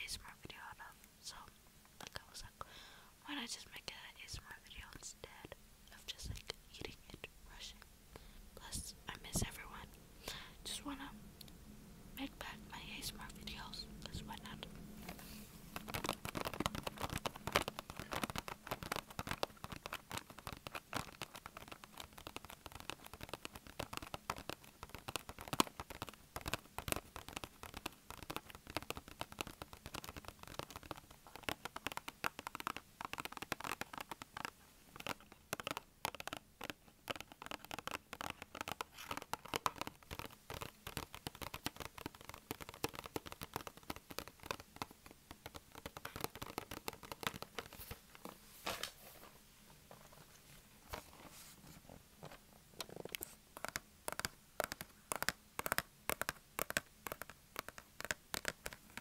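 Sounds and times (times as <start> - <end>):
fingernails tapping on cardboard box: 15.8 - 47.9, 53.0 - 59.0.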